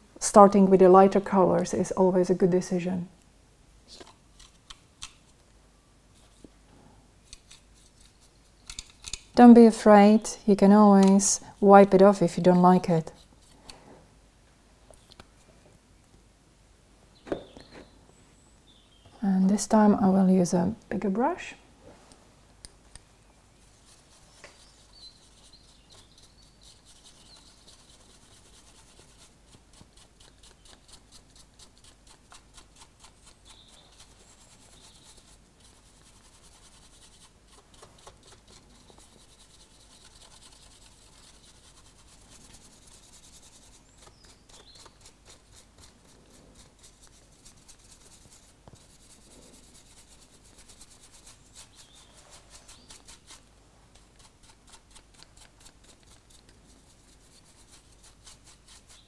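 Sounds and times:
paintbrush scratching on plastic: 23.6s - 59.0s.

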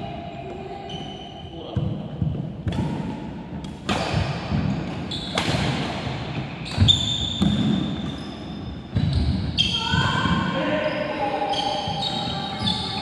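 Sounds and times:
racket striking shuttlecock: 2.6s - 7.8s
shoes squeaking on wooden floor: 6.3s - 13.0s.

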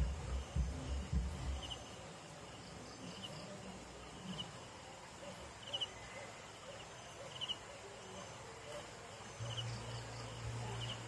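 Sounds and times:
crickets chirping faintly: 0.0s - 11.0s
low steady hiss: 0.0s - 11.0s.

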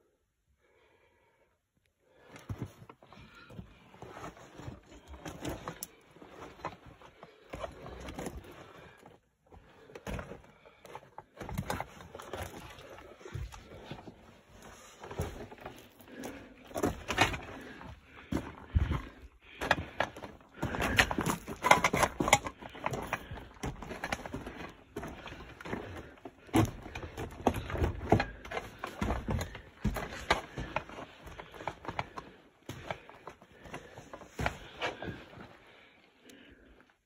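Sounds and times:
footsteps crunching on rock rubble: 9.5s - 35.5s.

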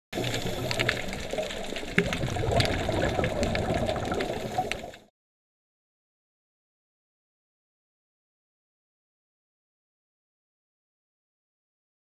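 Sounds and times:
water bubbling: 0.2s - 5.1s.

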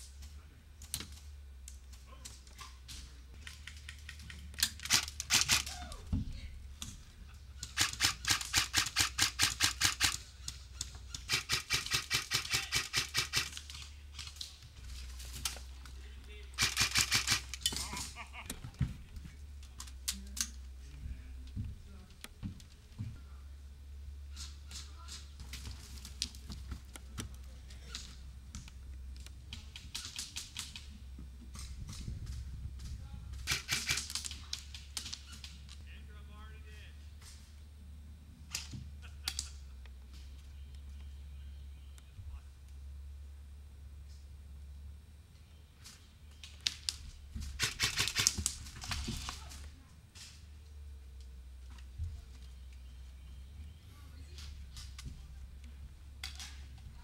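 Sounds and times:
steady low rumble: 0.0s - 35.0s
airsoft rifle firing: 4.6s - 5.9s, 7.6s - 10.3s, 11.2s - 13.7s, 16.6s - 17.8s, 33.4s - 34.3s, 47.6s - 49.2s.

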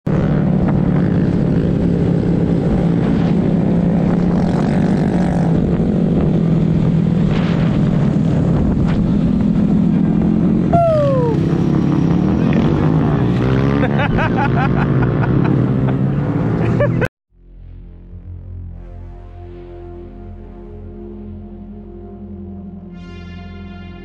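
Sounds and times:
road rush: 0.0s - 23.0s
wind noise: 0.1s - 12.6s
motorcycle engine cruising: 0.1s - 17.1s.

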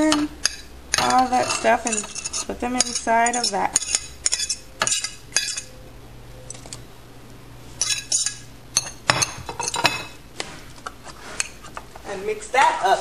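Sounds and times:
metal utensil scraping a ceramic plate: 0.4s - 5.7s.

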